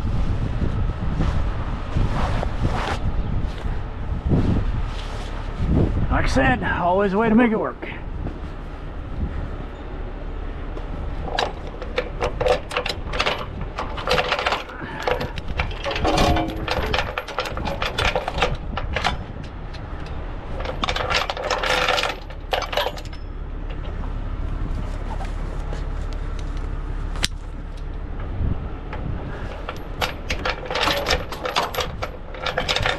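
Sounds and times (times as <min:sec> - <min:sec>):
low steady rumble: 0:00.0 - 0:32.9
tow chains clinking and rattling: 0:11.0 - 0:25.1, 0:27.6 - 0:32.9.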